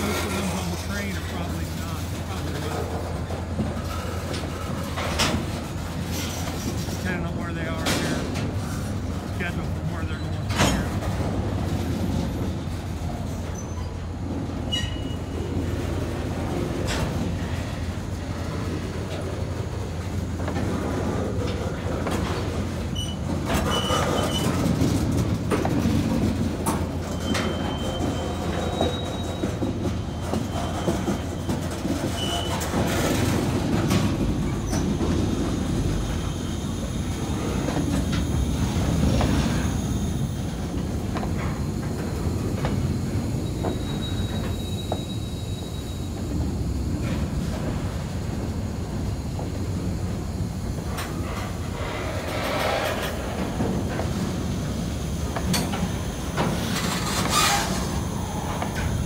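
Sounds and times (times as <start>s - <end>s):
wheels clicking and knocking on track: 0.0s - 45.2s, 50.8s - 59.0s
freight train wheels rumbling: 0.0s - 59.0s
high-pitched wheel squeals: 14.7s - 15.4s, 27.1s - 32.7s, 43.4s - 46.2s, 56.9s - 58.4s.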